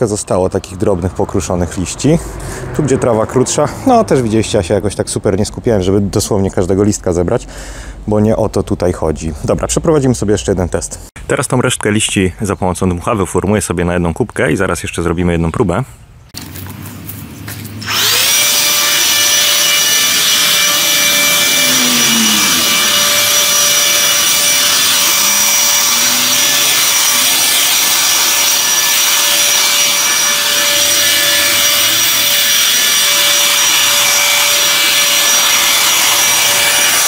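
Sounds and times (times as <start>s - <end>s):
leaf blower motor whine: 17.5s - 32.3s.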